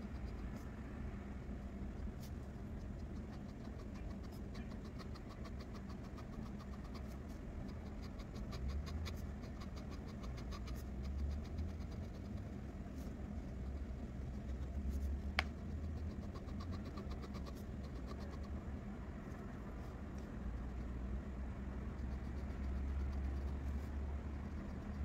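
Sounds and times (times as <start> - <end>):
steady low hum: 0.0 - 25.0
pen strokes ticking on paper: 2.0 - 18.6.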